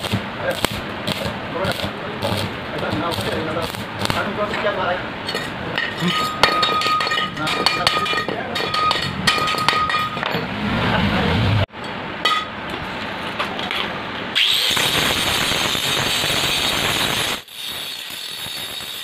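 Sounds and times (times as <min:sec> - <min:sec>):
hammer striking metal: 0:00.0 - 0:10.6, 0:11.8 - 0:12.6.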